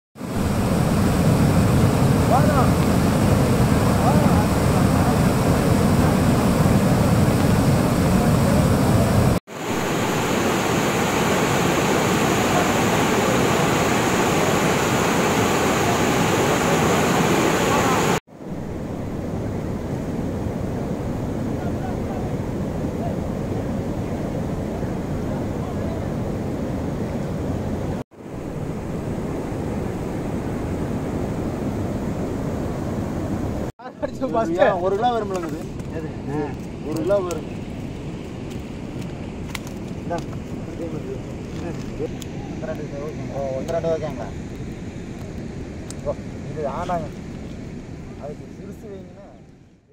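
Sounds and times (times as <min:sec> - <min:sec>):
rushing floodwater: 0:00.2 - 0:33.7.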